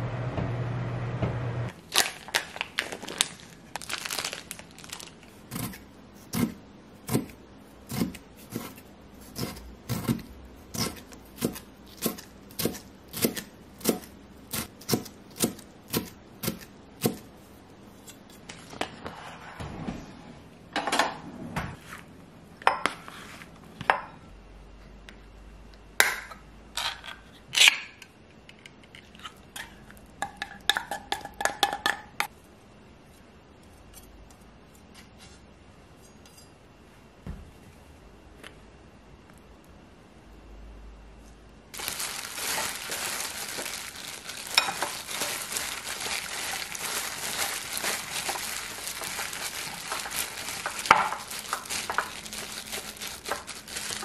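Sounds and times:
wrapper crinkling: 1.8 - 5.7, 41.8 - 54.0.

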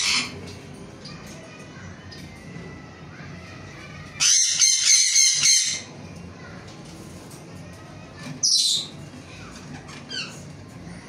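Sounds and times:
parrot screeching: 0.0 - 0.4, 4.2 - 5.9, 9.8 - 10.4.

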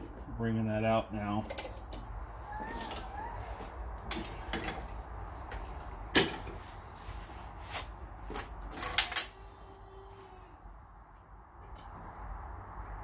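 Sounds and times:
metallic clanks and knocks: 4.1 - 4.9, 6.1 - 6.6.

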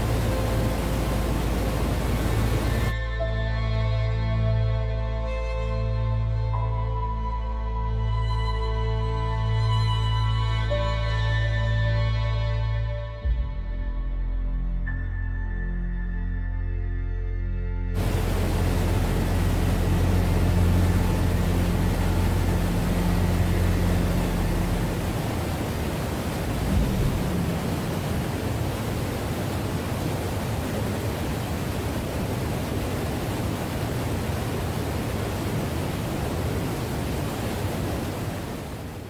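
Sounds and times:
flowing water rushing: 0.0 - 3.0, 18.0 - 39.0
low steady hum: 0.0 - 3.0, 18.0 - 39.0.

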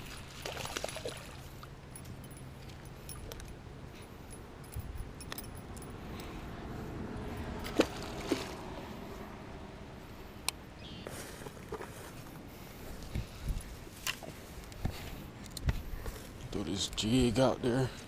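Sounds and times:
fishing lure clicks and clinks: 4.3 - 6.3.

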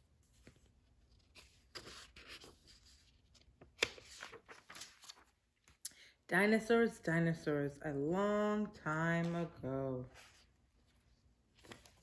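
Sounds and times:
book pages rustling: 0.0 - 5.8, 9.2 - 12.0.

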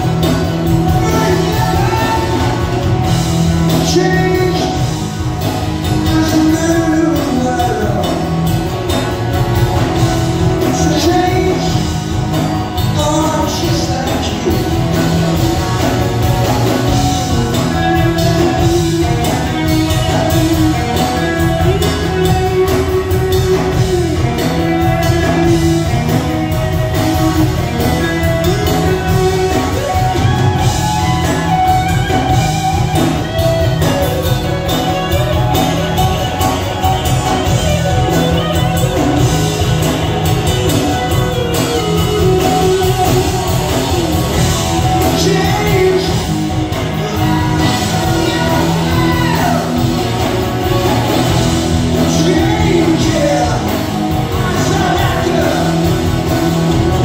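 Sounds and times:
drums: 0.0 - 57.0
man singing lead vocal: 0.8 - 3.0, 3.6 - 5.0, 5.9 - 8.6, 10.6 - 12.0, 12.8 - 16.0, 16.6 - 22.3, 23.3 - 26.2, 44.8 - 49.9, 51.9 - 57.0.

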